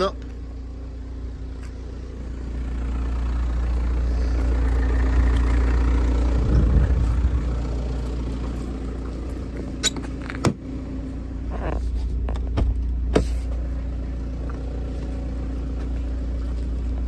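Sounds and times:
steady low hum: 0.2s - 9.8s.

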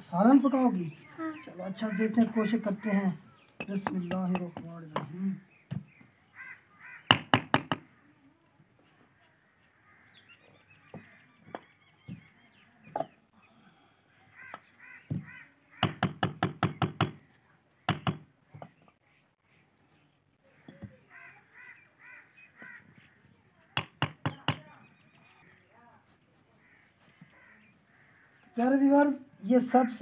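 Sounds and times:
crows cawing: 1.6s - 3.5s, 6.3s - 7.9s, 9.3s - 10.3s, 14.2s - 16.3s, 20.5s - 24.0s, 26.6s - 28.6s
hammer striking brick: 7.1s - 7.8s, 17.9s - 18.2s, 23.8s - 24.6s.

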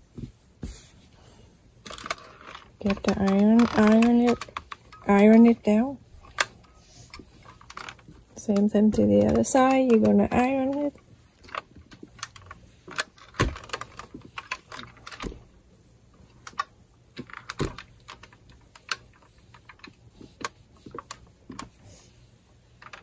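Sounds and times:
cloth being ironed clicks and taps: 8.0s - 10.9s.

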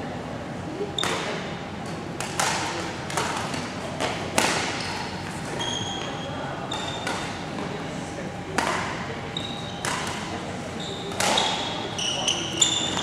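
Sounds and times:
rackets striking shuttlecocks: 2.2s - 5.1s, 9.7s - 10.3s, 11.1s - 11.8s
shoes squeaking on court floor: 4.8s - 7.4s, 9.3s - 13.0s.

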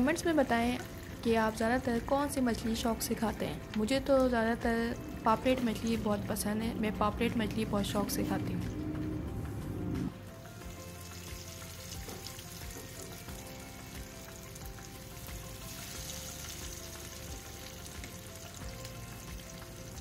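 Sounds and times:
soft background music: 0.0s - 20.0s
fish sizzling in oil: 10.2s - 20.0s.

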